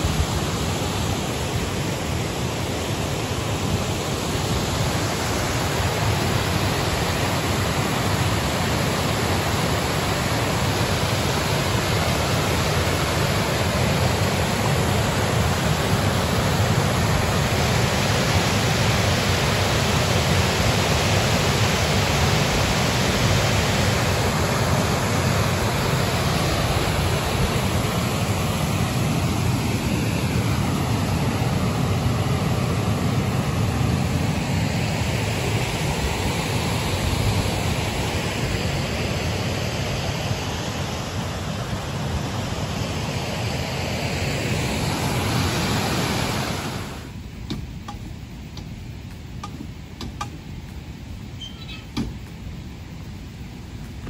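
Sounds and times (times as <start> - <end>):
water rushing over rocks: 0.0 - 51.3.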